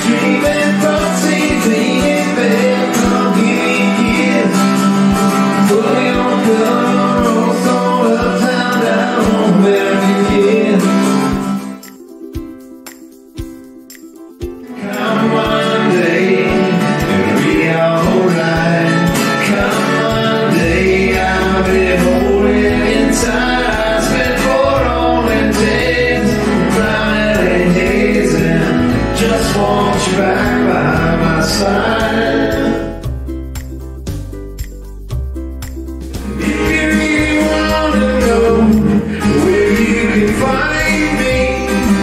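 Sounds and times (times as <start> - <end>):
man singing: 0.0 - 11.7, 14.6 - 33.1, 36.2 - 42.0
acoustic guitar: 0.0 - 42.0
deep bass: 20.6 - 42.0.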